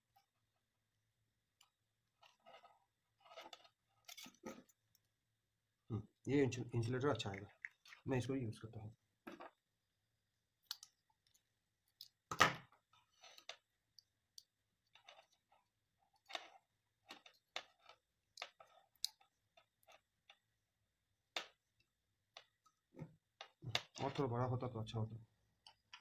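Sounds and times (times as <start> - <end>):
small clicks and rustles: 1.6 - 5.1.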